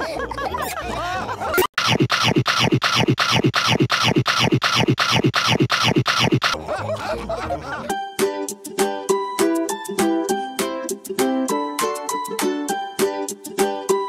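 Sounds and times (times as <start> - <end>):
stuttered falling sweep effect: 1.8 - 6.6
ukulele music: 8.0 - 14.0.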